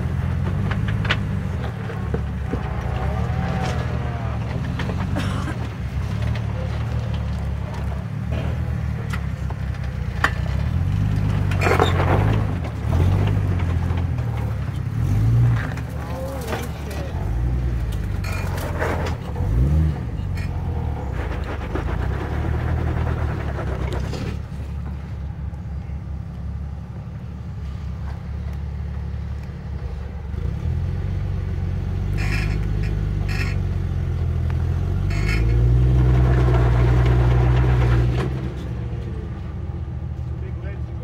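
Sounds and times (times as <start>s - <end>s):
off-road vehicle engine revving: 0.0s - 26.2s, 27.7s - 41.0s
short knocks and clatter: 0.3s - 17.0s.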